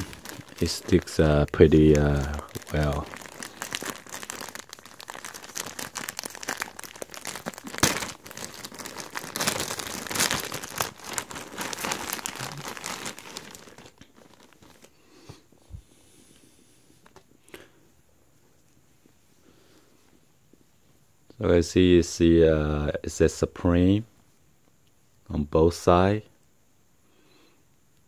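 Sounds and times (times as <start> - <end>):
plastic packaging crinkling: 0.0 - 15.0
sharp plastic tear: 2.6 - 14.0.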